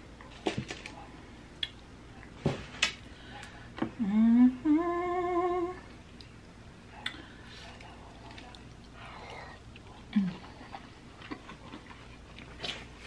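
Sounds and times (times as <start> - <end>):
woman humming while eating: 3.8 - 6.0, 10.1 - 10.6.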